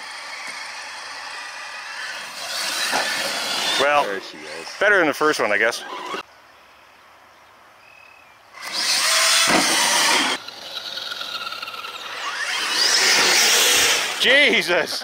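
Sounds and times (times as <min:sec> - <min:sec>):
rc truck electric motor whining: 0:00.0 - 0:05.0, 0:05.6 - 0:06.2, 0:08.6 - 0:14.3.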